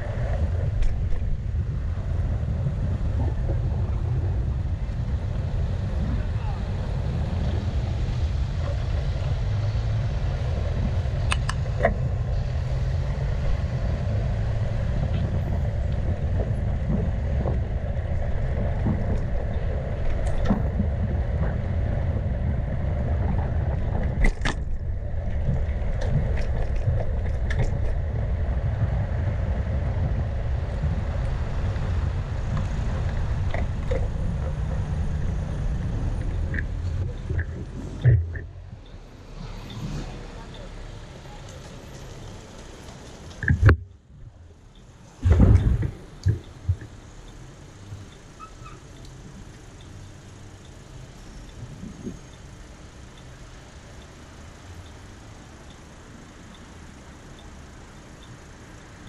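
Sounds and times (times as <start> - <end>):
wind buffeting microphone: 0.0 - 39.0, 45.2 - 48.1, 51.5 - 52.6
bicycle clicks and knocks: 23.9 - 28.0.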